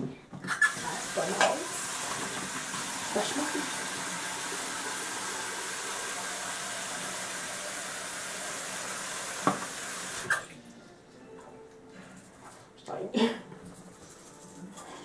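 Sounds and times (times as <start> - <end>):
tap water running into sink: 0.6 - 10.4.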